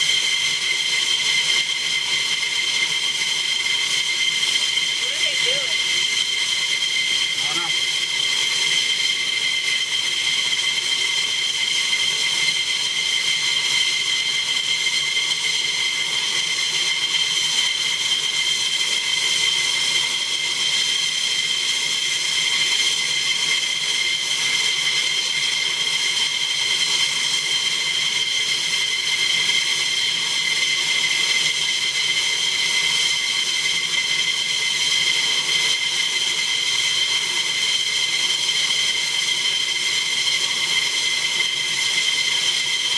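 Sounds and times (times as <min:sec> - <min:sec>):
jet engines idling: 0:00.5 - 0:11.4.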